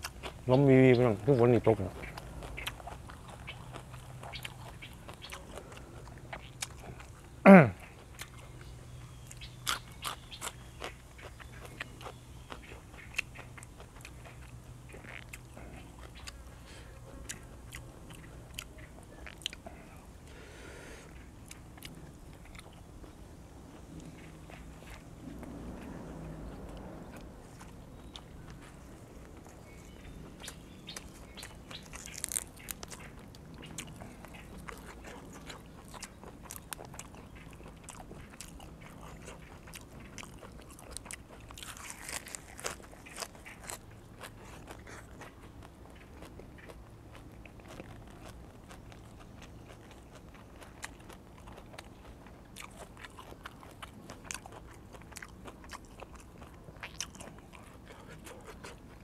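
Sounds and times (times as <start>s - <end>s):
person chewing and crunching: 0.0s - 0.8s, 1.4s - 59.0s.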